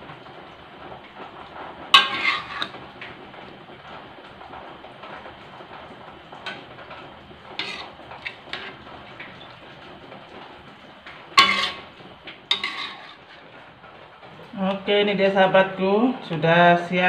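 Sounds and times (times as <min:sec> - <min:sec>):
spatula scraping metal wok: 0:02.0 - 0:02.8, 0:07.5 - 0:09.5, 0:11.3 - 0:13.6.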